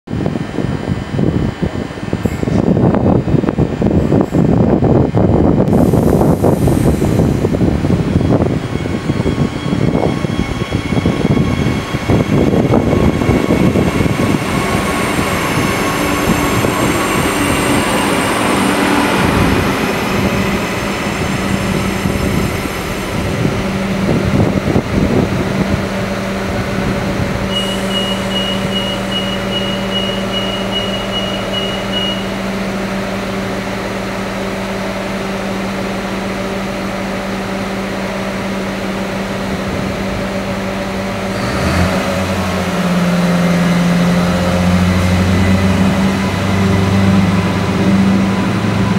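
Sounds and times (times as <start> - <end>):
brakes squealing: 27.4 - 32.6
high electronic beeps: 27.5 - 32.3.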